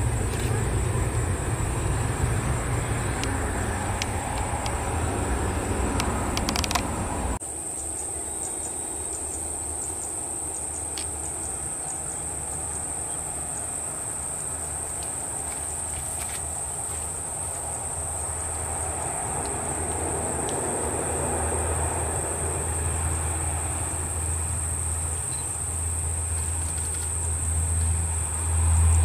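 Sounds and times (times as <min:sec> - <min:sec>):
jet takeoff noise: 0:00.0 - 0:07.4
distant turboprop engines droning: 0:00.0 - 0:29.0.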